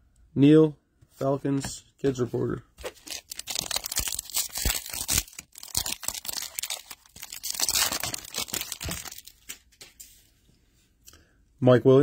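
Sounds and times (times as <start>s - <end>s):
wrapper ripping and crinkling: 2.8s - 9.7s.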